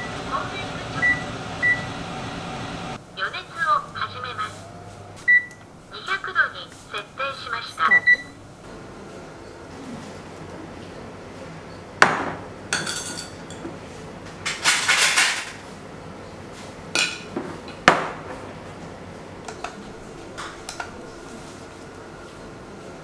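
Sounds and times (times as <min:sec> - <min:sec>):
glassware clinking and knocking: 0:12.7 - 0:13.7.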